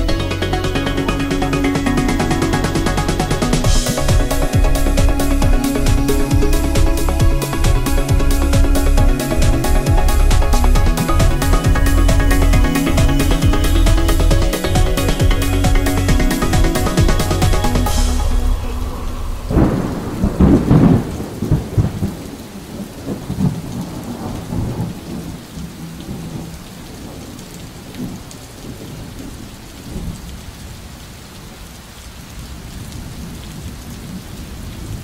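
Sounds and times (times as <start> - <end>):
rain falling: 0.0 - 35.0
thunder rolling: 1.0 - 27.4.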